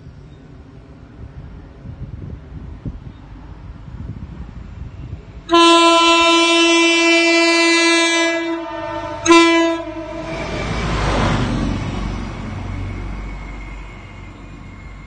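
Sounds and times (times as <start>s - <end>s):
train running through station: 0.0s - 15.0s
train horn blasts: 5.5s - 11.4s.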